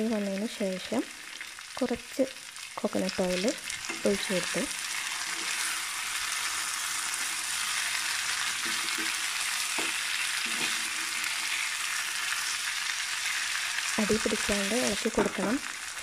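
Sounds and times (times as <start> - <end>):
meat sizzling in a frying pan: 0.0 - 16.0
wooden spatula stirring: 7.1 - 11.6.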